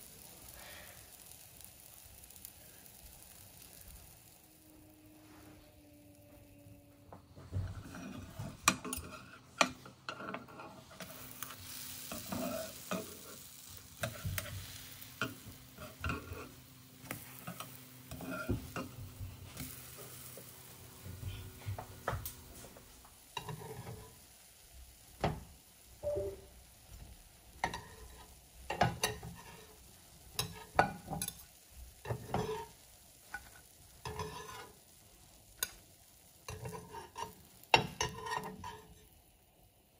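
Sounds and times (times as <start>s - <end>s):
pancakes sizzling: 0.0s - 39.9s
spatula scraping and tapping pan: 7.5s - 22.7s, 23.3s - 24.3s, 25.2s - 34.9s, 35.6s - 39.2s.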